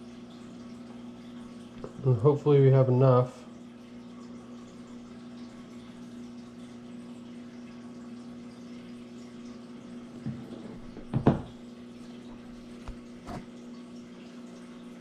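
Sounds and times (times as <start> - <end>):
soft knocks on plastic: 10.2 - 11.6.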